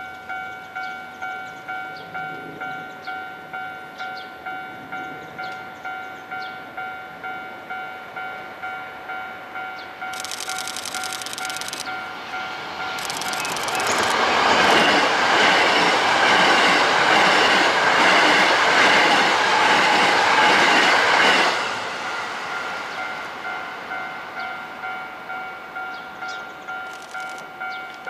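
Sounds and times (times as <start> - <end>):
bell ringing steadily: 0.0 - 15.9, 22.5 - 28.0.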